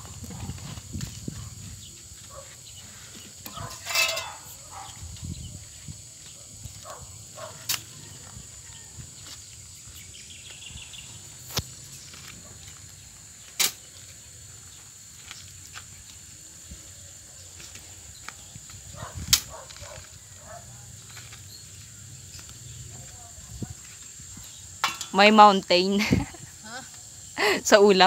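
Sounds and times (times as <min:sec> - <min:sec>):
shovel scraping: 0:03.5 - 0:04.6
steady high hiss: 0:08.7 - 0:20.4, 0:21.3 - 0:28.0.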